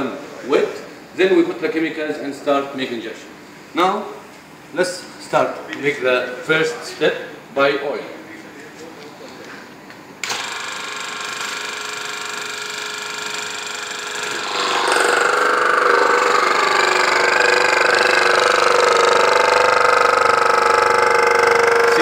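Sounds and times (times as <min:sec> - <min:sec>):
pump running steadily: 0:10.2 - 0:22.0.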